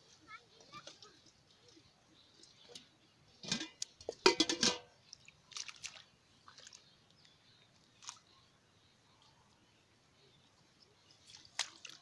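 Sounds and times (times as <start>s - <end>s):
splashes in shallow muddy water: 3.8s - 7.2s, 7.8s - 8.4s, 11.2s - 12.0s.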